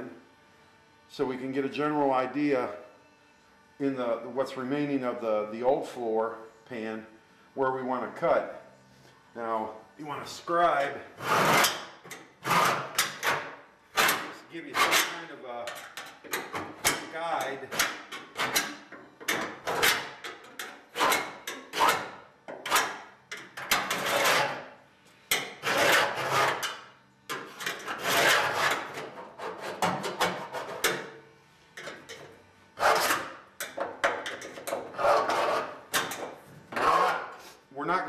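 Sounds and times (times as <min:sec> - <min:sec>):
scribe scratching sheet metal: 0:10.7 - 0:24.6, 0:25.3 - 0:31.1, 0:32.8 - 0:37.6.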